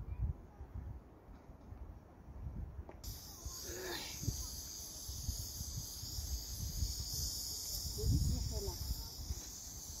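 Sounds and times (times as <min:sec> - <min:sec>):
wind rumbling on microphone: 0:00.0 - 0:10.0
high-pitched hiss or chirring: 0:03.0 - 0:10.0.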